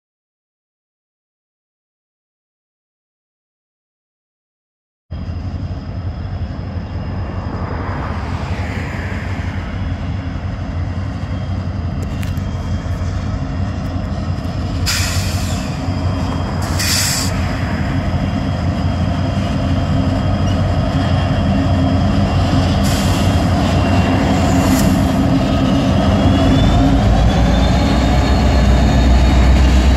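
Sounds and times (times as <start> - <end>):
diesel locomotive engines rumbling: 5.1 - 29.9.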